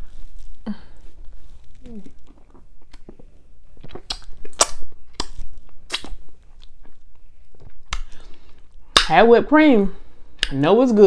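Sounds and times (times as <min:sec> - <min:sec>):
wet chewing crunches: 0:00.1 - 0:08.8
mouth smacks: 0:01.6 - 0:09.1.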